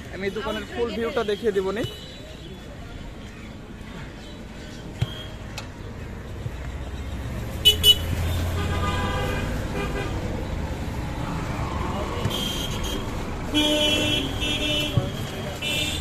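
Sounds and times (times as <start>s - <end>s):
passing vehicle rumble: 6.9s - 14.4s.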